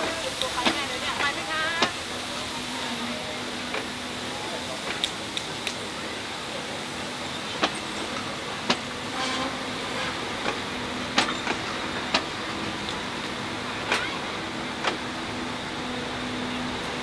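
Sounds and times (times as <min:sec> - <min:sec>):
wheels clicking over rail joints: 0:00.0 - 0:02.1, 0:04.8 - 0:05.8, 0:07.5 - 0:15.2
train coaches rumbling: 0:00.0 - 0:17.0.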